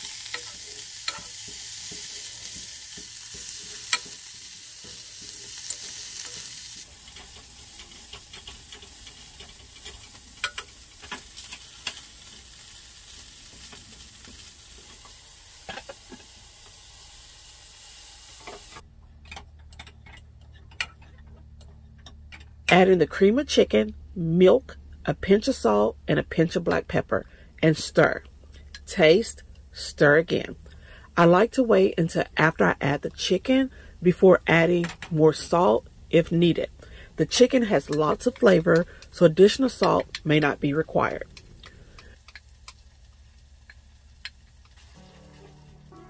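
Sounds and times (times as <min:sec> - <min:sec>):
vegetables sizzling in saucepan: 0:00.0 - 0:18.8, 0:31.4 - 0:46.0.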